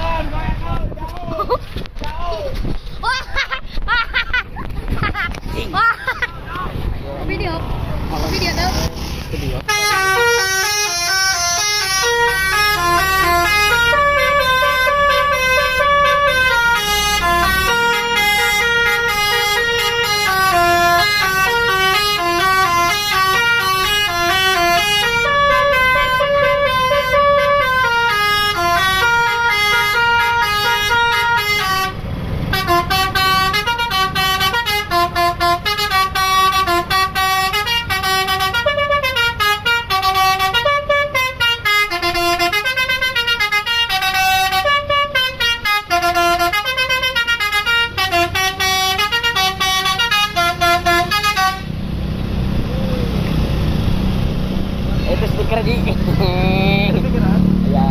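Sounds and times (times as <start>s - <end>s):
bus horn playing a tune: 9.6s - 51.8s.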